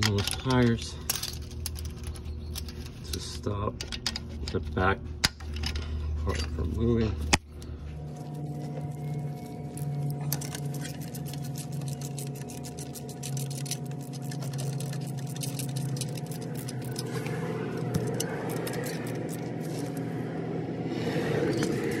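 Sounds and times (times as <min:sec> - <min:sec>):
steady low hum: 0:00.0 - 0:22.0
ratcheting wrench clicking: 0:10.3 - 0:17.1.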